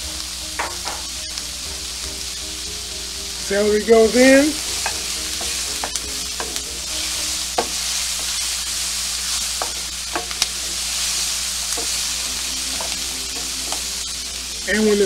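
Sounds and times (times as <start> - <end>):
vegetables sizzling in oil: 0.0 - 15.0
wooden spoon knocking pan: 0.6 - 1.2, 4.0 - 8.4, 9.5 - 10.8, 11.7 - 12.1, 12.7 - 14.0.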